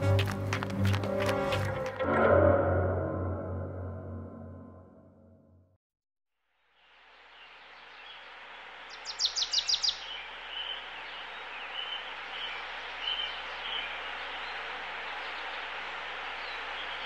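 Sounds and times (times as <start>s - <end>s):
birds chirping: 7.1s - 17.0s.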